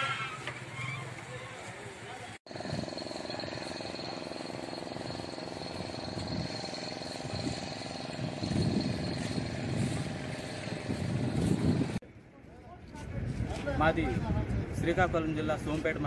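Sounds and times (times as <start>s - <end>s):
engine idling: 2.5s - 11.9s
thin high whine: 2.5s - 12.0s.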